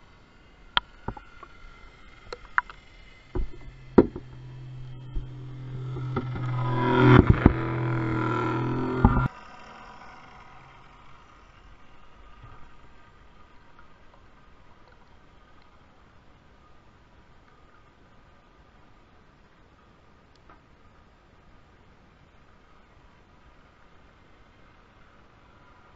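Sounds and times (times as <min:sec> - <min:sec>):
small motor humming underwater: 0:00.0 - 0:15.4
sharp knocks: 0:03.3 - 0:09.3.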